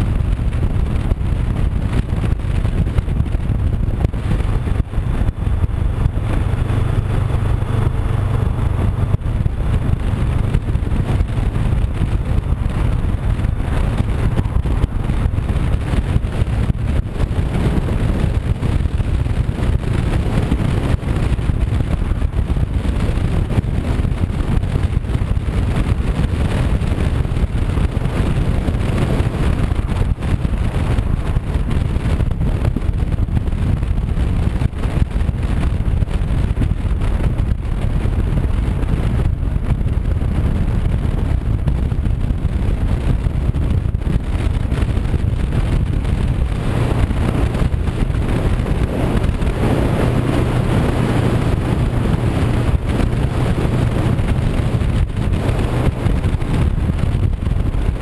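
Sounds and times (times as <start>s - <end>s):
motorcycle engine cruising: 0.0s - 58.0s
wind rumble on microphone: 0.0s - 58.0s.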